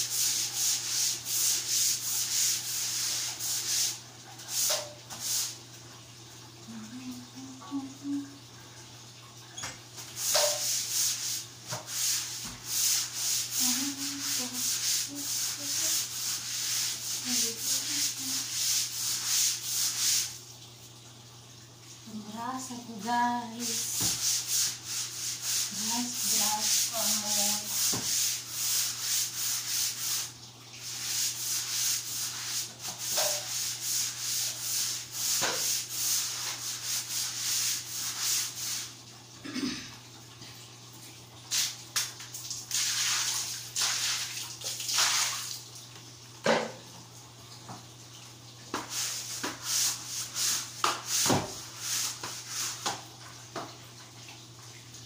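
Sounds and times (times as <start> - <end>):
stiff brush scrubbing floor: 0.0 - 5.6, 10.0 - 20.4, 23.0 - 38.9, 42.7 - 45.5, 48.7 - 53.0
low steady hum: 0.1 - 27.9.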